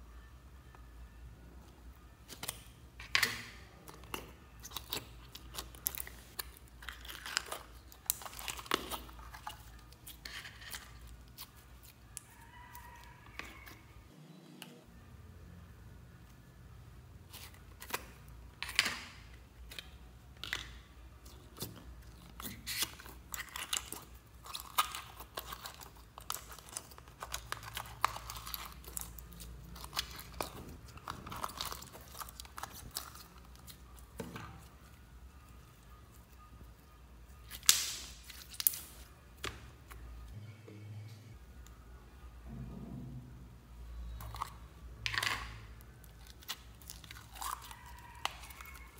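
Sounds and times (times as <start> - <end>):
slime crackling and squelching: 3.8 - 13.9, 17.2 - 36.3, 37.4 - 39.1, 44.0 - 48.9.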